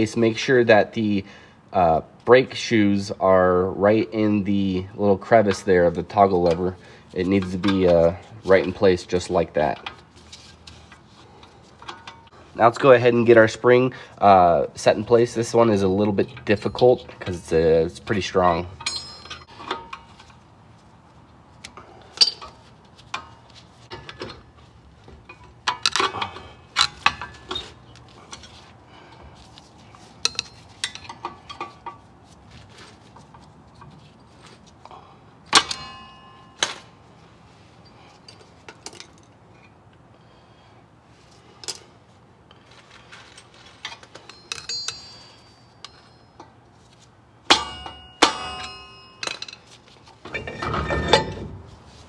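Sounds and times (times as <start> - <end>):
metal tools clinking: 7.3 - 12.4, 15.0 - 20.4, 22.0 - 24.5, 30.0 - 32.1, 35.5 - 37.0, 43.0 - 52.0
ringing metal clangs: 18.7 - 20.1, 35.5 - 37.0, 44.2 - 46.6, 47.5 - 49.7, 50.3 - 51.7.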